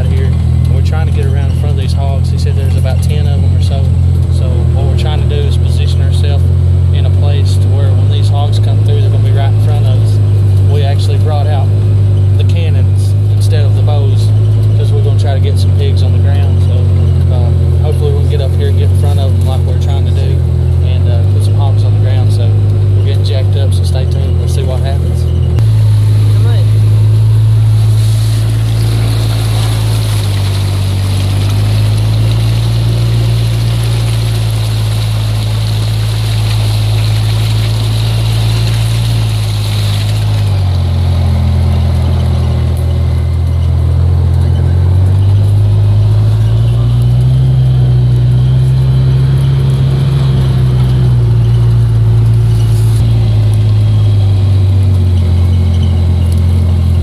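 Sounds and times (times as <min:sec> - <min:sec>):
utility vehicle engine running: 0:00.0 - 0:57.0
hiss: 0:27.8 - 0:31.1.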